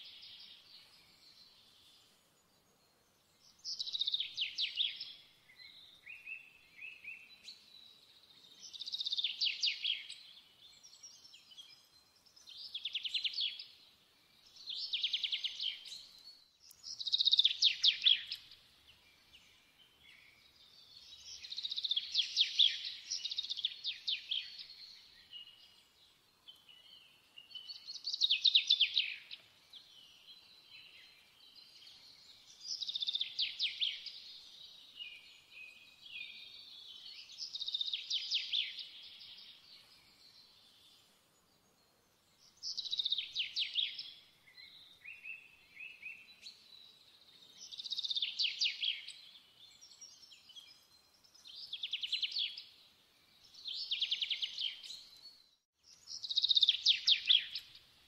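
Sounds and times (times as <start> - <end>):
soft bird chirps: 0.0 - 58.0.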